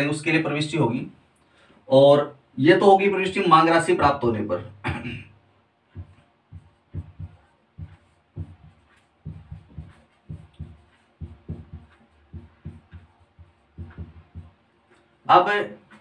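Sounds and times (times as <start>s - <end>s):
marker writing on whiteboard: 5.9s - 16.0s.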